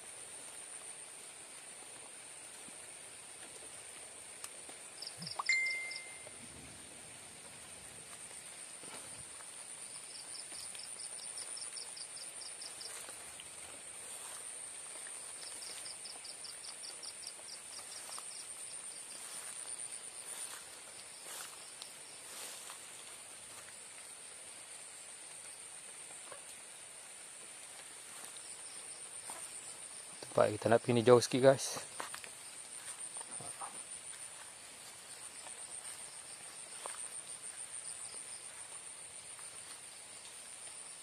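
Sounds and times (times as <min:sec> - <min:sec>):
rapid pulsed insect chirps: 0:00.0 - 0:41.0
soft rain hiss: 0:00.0 - 0:41.0
insect high-pitched trill: 0:04.8 - 0:06.6, 0:08.3 - 0:23.8.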